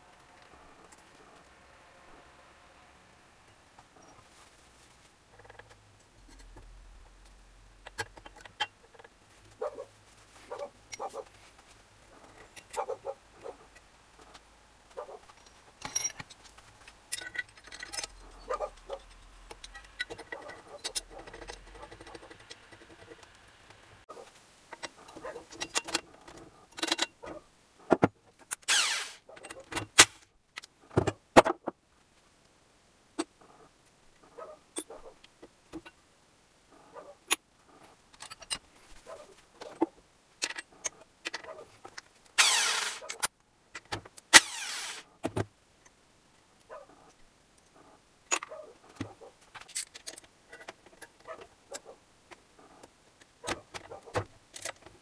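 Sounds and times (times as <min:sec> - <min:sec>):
metal tools clinking: 0:15.8 - 0:22.3.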